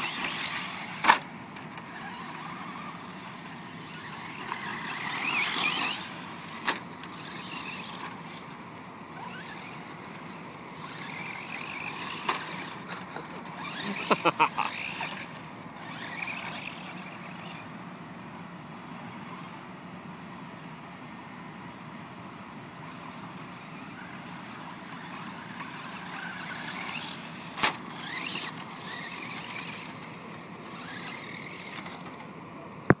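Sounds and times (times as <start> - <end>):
electric motor whining: 0.0 - 8.5, 9.2 - 17.7, 22.8 - 32.3.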